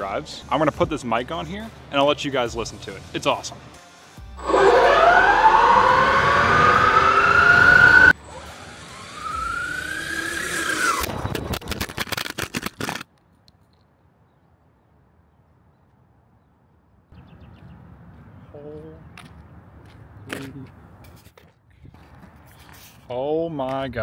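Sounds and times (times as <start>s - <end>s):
electric motor whining: 4.4s - 11.2s
second rising and falling whine: 4.4s - 11.3s.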